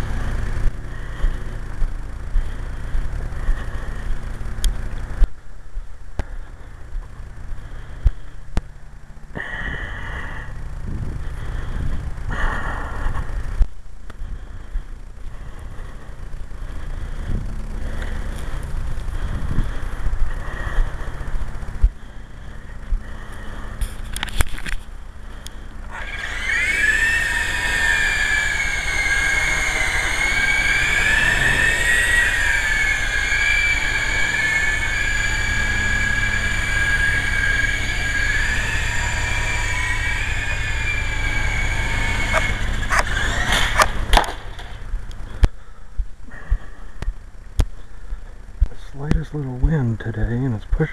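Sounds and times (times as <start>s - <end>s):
toy helicopter motors whining: 0.0s - 5.3s, 16.7s - 45.5s
wind rumble on microphone: 9.6s - 22.1s.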